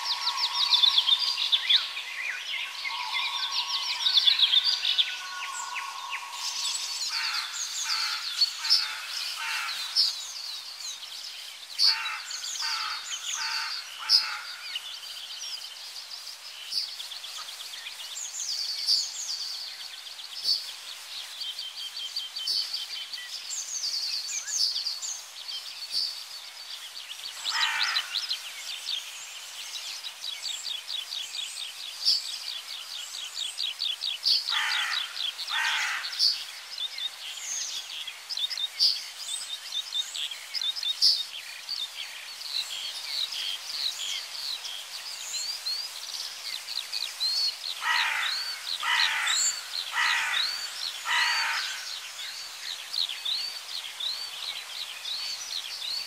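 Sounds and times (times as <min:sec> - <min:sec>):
harsh bird calls: 0:00.0 - 0:10.2, 0:27.4 - 0:28.4, 0:34.4 - 0:36.5, 0:47.7 - 0:52.6
small birds chirping and trilling: 0:00.0 - 0:56.0.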